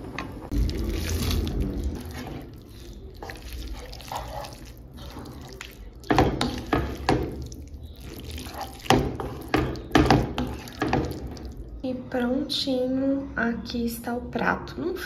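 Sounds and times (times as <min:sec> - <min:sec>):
wet squelching of pasta in sauce: 0:00.5 - 0:11.8
spoon striking a pan: 0:08.9 - 0:11.2.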